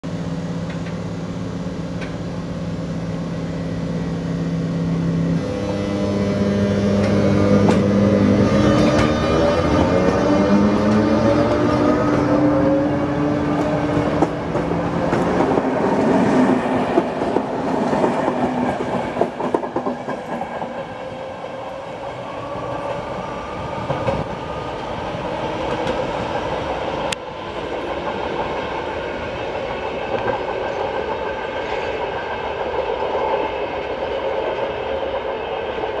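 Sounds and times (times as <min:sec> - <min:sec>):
electric locomotive whine: 0:00.0 - 0:36.0.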